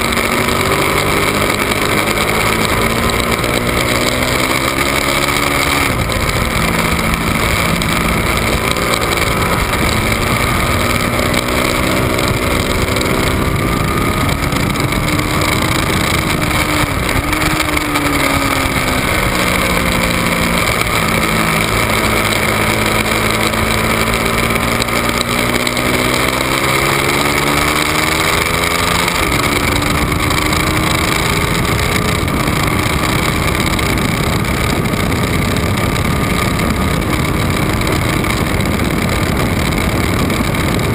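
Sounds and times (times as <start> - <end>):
motorcycle engine revving: 0.0 - 40.9
wind and road noise: 0.0 - 40.9.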